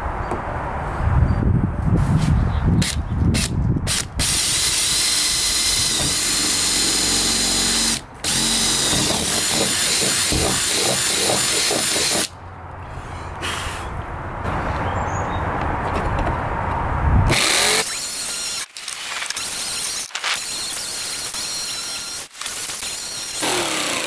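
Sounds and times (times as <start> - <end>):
cordless drill boring: 2.8 - 12.3, 17.3 - 24.0.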